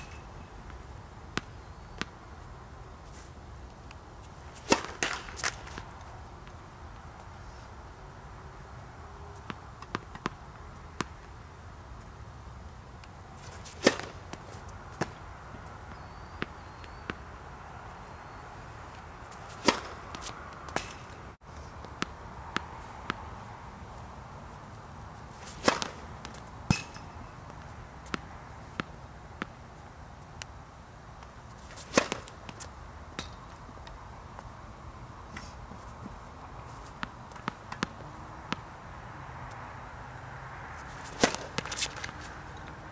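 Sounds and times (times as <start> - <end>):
racket strings striking ball: 0.0 - 0.4, 4.5 - 5.8, 13.5 - 14.4, 19.5 - 21.2, 25.4 - 27.4, 31.7 - 32.4, 41.0 - 42.8
tennis ball bouncing: 0.0 - 2.2, 4.2 - 6.6, 9.4 - 11.2, 13.0 - 17.3, 18.9 - 23.3, 25.2 - 29.6, 31.2 - 33.5, 36.9 - 38.7, 40.8 - 42.9
racket swish: 4.2 - 5.9, 13.4 - 15.1, 19.3 - 21.2, 25.2 - 27.1, 31.6 - 32.7, 40.8 - 42.4.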